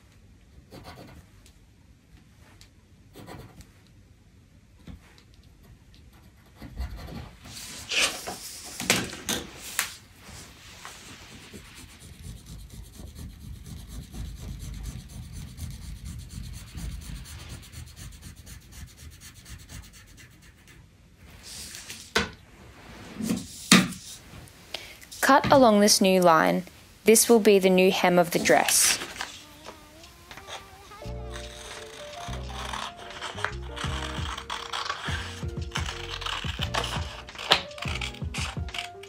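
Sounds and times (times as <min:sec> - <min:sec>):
pencil scratching on paper: 0:00.7 - 0:01.2, 0:03.1 - 0:03.7, 0:06.1 - 0:08.8, 0:10.3 - 0:20.8, 0:23.2 - 0:24.2, 0:28.4 - 0:39.0
paper sliding across a table: 0:07.5 - 0:12.0, 0:21.2 - 0:25.2.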